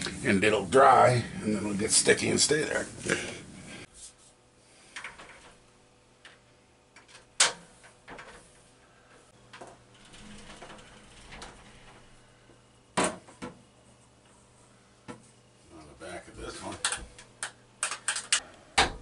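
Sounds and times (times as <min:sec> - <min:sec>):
glass shower doors clicking: 0:09.5 - 0:12.4.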